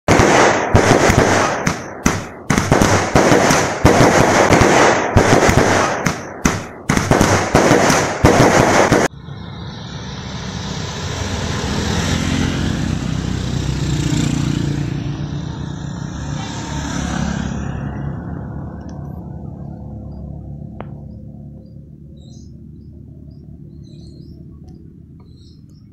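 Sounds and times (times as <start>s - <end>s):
fireworks crackling and banging: 0.1s - 9.1s
motorcycle passing: 9.1s - 25.7s.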